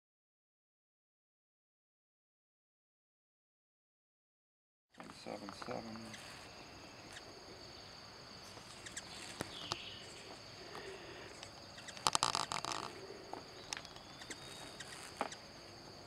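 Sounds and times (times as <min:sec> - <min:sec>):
high-pitched insect drone: 0:05.0 - 0:16.0.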